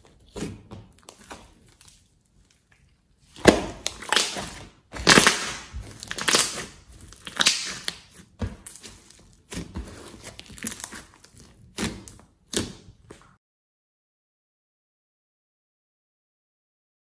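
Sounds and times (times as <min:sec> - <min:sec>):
slime squishing: 0:00.0 - 0:13.4.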